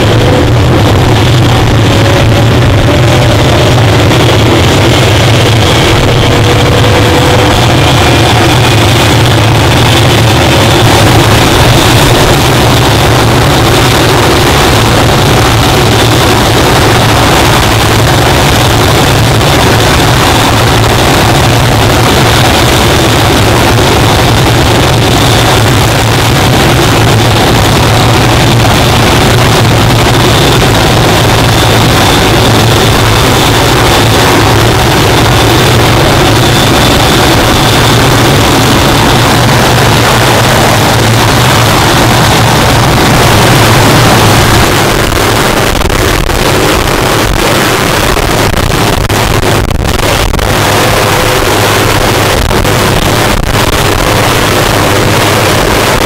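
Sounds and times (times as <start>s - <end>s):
helicopter rotor beat: 0.0s - 56.0s
helicopter turbine whine: 0.0s - 56.0s
rotor downwash buffeting microphone: 0.0s - 56.0s.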